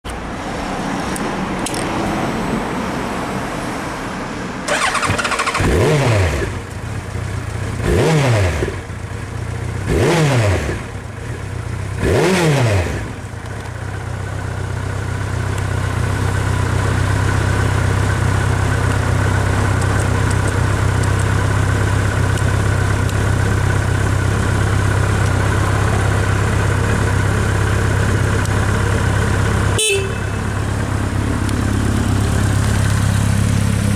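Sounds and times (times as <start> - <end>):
engine revving blips: 4.7 - 6.6, 9.9 - 10.8, 12.0 - 13.1
motorcycle engine idling: 6.5 - 7.9, 8.6 - 9.9, 10.8 - 12.0, 13.0 - 33.9.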